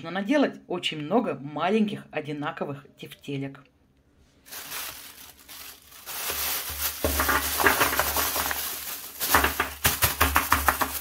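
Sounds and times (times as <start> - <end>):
plastic bag crinkling: 4.2 - 11.0
meatballs popping from tray: 7.0 - 8.6, 9.2 - 11.0.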